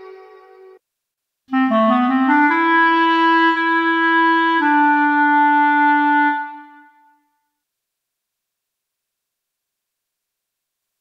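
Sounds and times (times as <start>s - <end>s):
solo clarinet phrase: 1.5s - 7.3s.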